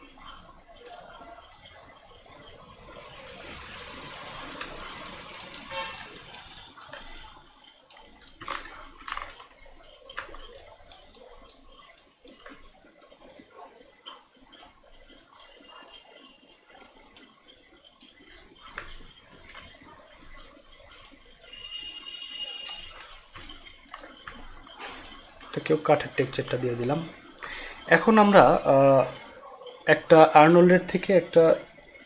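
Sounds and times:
mouse and keyboard clicks: 0.8s - 1.7s, 4.2s - 13.2s, 16.7s - 21.2s, 22.6s - 27.9s.

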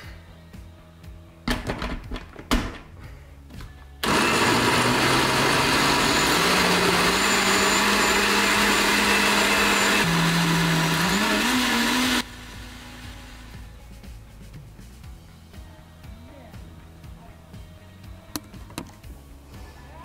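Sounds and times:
blender motor whirring: 4.0s - 13.7s.

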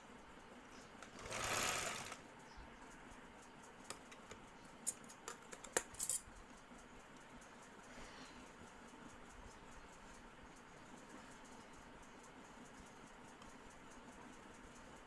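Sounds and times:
sewing machine stitching: 1.1s - 2.2s
sharp clicks and taps: 2.4s - 7.6s.

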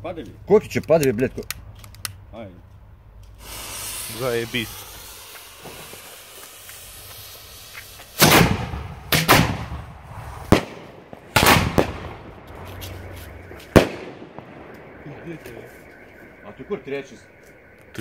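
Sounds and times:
fuse hissing: 3.4s - 8.3s
firework bangs: 3.4s - 18.0s.

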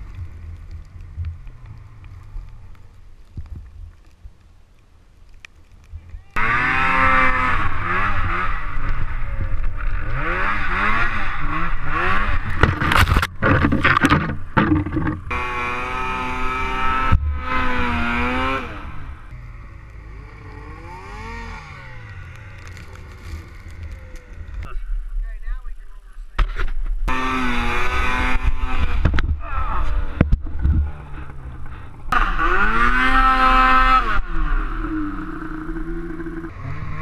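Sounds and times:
branches scraping and clattering: 5.2s - 24.7s
snowmobile engine revving: 6.4s - 13.1s, 14.8s - 24.7s, 27.1s - 37.0s.

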